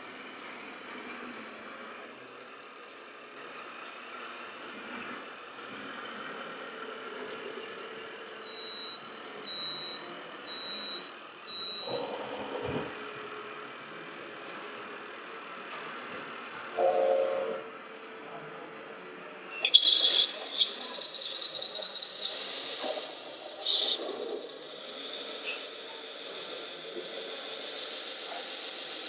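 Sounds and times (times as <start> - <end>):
whir of small model motors: 0.0 - 11.9
high electronic reversing beeps: 19.6 - 28.7.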